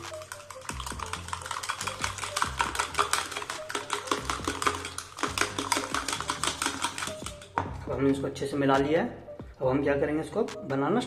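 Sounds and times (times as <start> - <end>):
spoon beating eggs in plastic bowl: 0.0 - 8.2
background music: 0.0 - 11.0.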